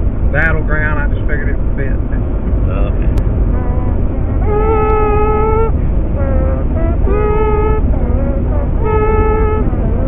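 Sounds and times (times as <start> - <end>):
car road and engine rumble: 0.0 - 10.0
slow tune of held notes: 3.5 - 10.0.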